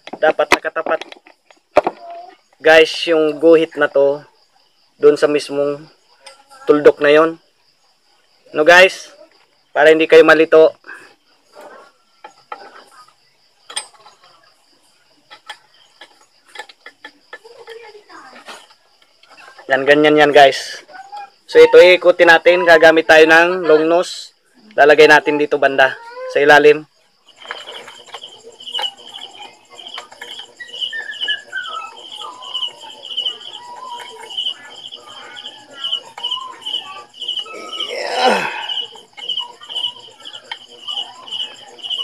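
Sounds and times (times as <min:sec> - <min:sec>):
bird chirping: 0:20.5 - 0:42.0
falling whistled bird notes: 0:30.6 - 0:34.2.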